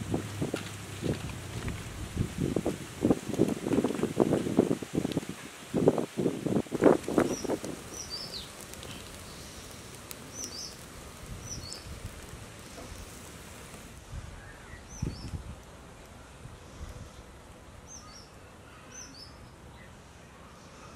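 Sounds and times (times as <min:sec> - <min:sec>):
outdoor hiss: 0:00.0 - 0:20.9
small birds chirping: 0:06.8 - 0:13.1, 0:14.4 - 0:15.4, 0:17.1 - 0:20.9.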